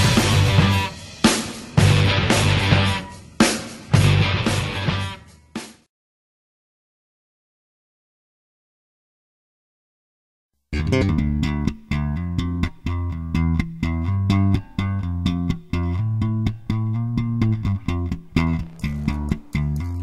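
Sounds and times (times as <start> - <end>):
plucked bass line: 0.0 - 0.9, 1.8 - 3.0, 4.0 - 5.0, 10.8 - 20.0
background music with beat: 0.0 - 5.8, 15.1 - 20.0.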